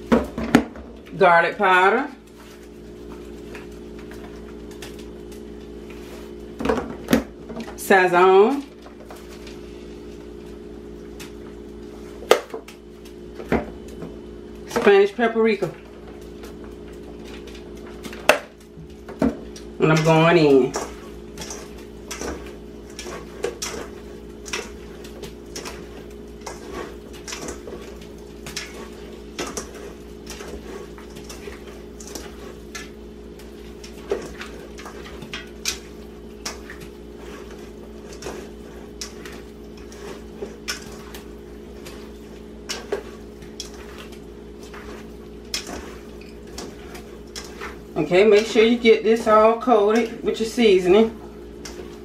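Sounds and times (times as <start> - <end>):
hands squishing meat in bowl: 16.3 - 50.8.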